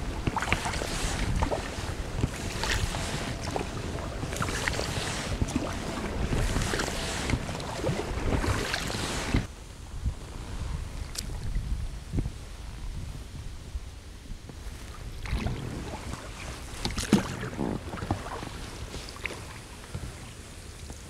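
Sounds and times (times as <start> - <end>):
paddle swishing water: 0.0 - 9.5, 14.6 - 21.0
wind on microphone: 0.0 - 21.0.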